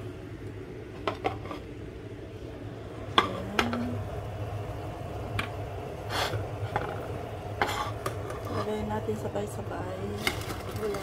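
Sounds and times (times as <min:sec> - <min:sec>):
steady low hum: 0:00.0 - 0:11.0
rustling scrape: 0:07.6 - 0:08.9.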